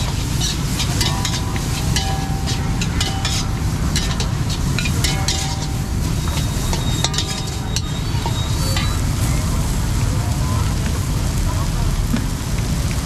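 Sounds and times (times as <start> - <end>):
metal spatulas clanking on woks: 0.0 - 9.5
food sizzling: 0.0 - 13.0
gas burner flames roaring: 0.0 - 13.0.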